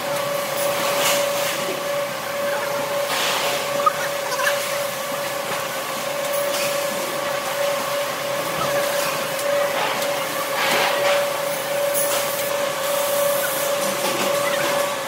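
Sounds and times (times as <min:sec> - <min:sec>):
factory machinery humming: 0:00.0 - 0:15.0.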